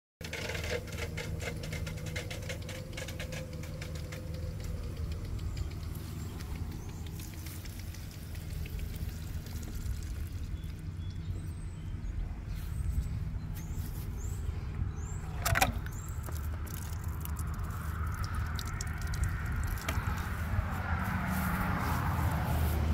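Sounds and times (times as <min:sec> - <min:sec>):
steady low rumble: 0:01.3 - 0:22.9
kitten rustling in straw: 0:20.1 - 0:22.9.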